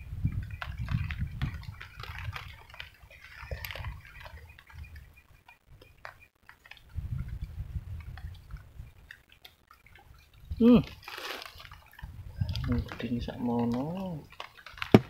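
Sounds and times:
raindrops tapping: 0:00.0 - 0:15.0.

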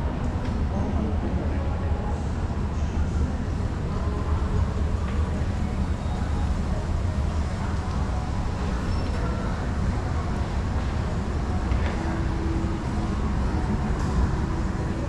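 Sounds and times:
low traffic rumble: 0:00.0 - 0:15.0.

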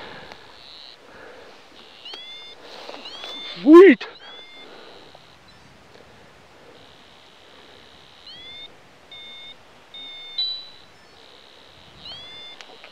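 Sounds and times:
flat electronic beeps: 0:01.8 - 0:05.6, 0:06.8 - 0:12.9
rising electronic chirp: 0:08.0 - 0:11.4.

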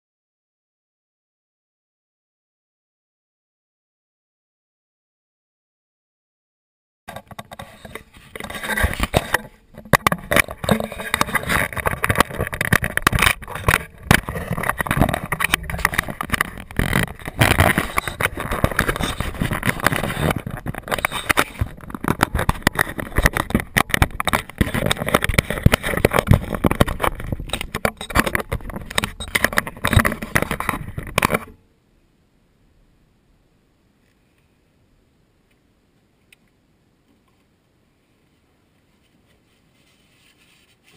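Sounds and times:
knocks and bumps: 0:07.1 - 0:31.5
toy truck rattling over asphalt: 0:08.5 - 0:31.5.

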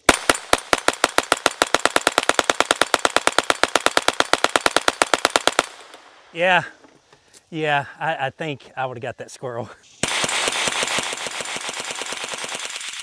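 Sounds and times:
gatling gun firing: 0:10.0 - 0:13.0.

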